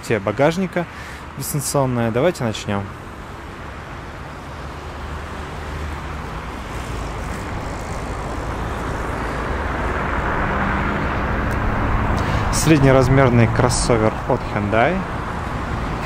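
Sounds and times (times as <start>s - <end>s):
vehicle rumbling hiss: 0.8s - 1.4s, 3.2s - 14.8s.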